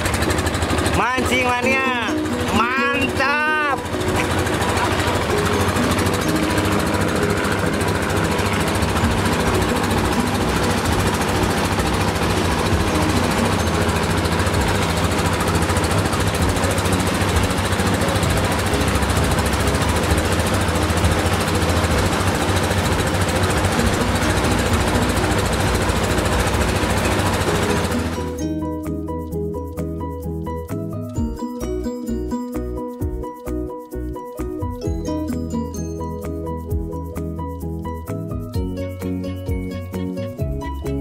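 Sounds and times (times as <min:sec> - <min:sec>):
water rushing along hull: 0:00.0 - 0:28.4
motorboat engine chugging: 0:00.0 - 0:29.7.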